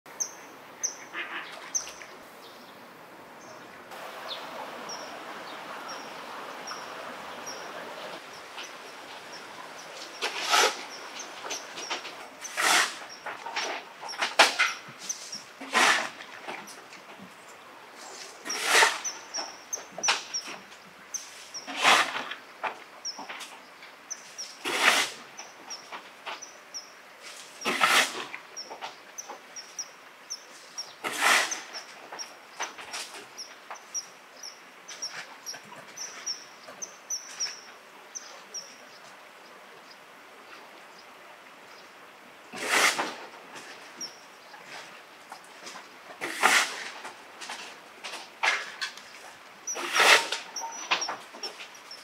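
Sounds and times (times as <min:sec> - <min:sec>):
steady outdoor hiss: 0:00.1 - 0:52.0
harsh animal calls: 0:00.8 - 0:01.9
kingfisher calling: 0:04.2 - 0:13.2.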